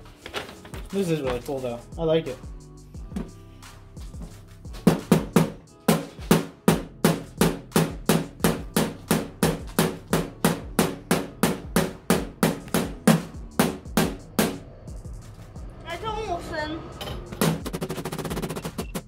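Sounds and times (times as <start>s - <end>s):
hammer striking nails in wood: 4.8s - 14.6s.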